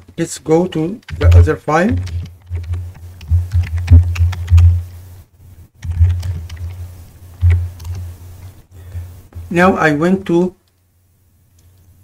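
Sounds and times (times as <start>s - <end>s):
keyboard key clicks: 1.0s - 4.7s
low hum: 1.1s - 5.2s, 5.8s - 8.3s.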